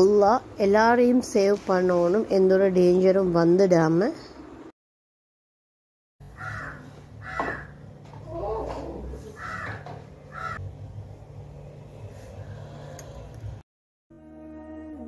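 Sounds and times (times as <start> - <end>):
crows cawing: 6.2 - 7.8, 8.6 - 10.6
steady low hum: 6.2 - 13.6.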